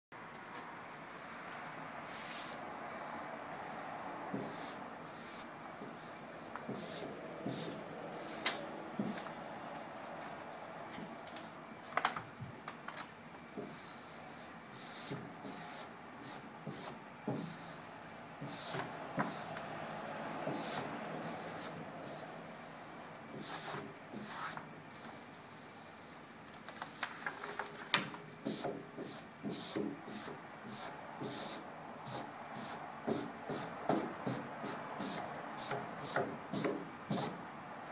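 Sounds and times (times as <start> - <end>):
paper rustling: 10.2 - 13.2, 26.5 - 28.2.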